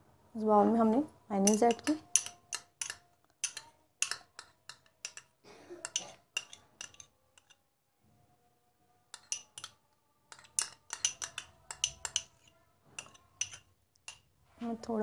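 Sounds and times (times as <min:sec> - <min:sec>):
metal spoon clinking on glass: 0:01.4 - 0:07.6, 0:09.1 - 0:14.3.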